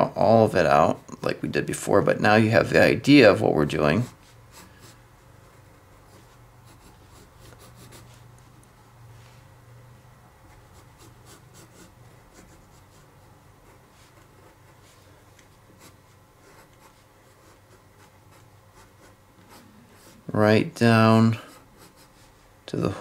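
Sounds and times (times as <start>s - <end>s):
pencil scratching on paper: 4.0s - 8.3s, 10.5s - 20.3s, 21.4s - 22.5s.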